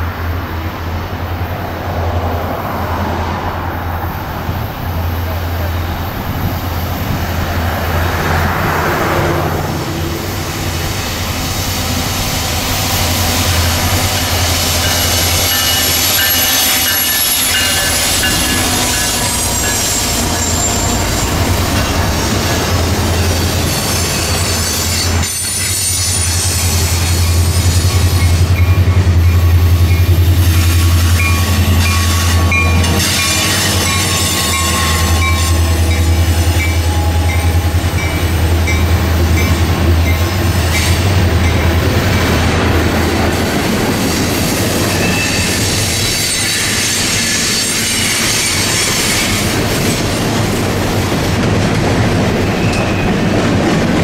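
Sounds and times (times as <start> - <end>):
diesel locomotive engine drone: 0.0 - 54.0
train wheels clacking on rail joints: 10.7 - 54.0
high wheel squeals: 12.9 - 41.7, 44.0 - 50.2.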